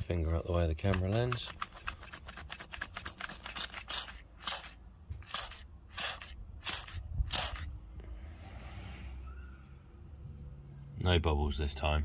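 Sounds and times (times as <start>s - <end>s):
spray bottle spritzing: 0.9s - 7.7s.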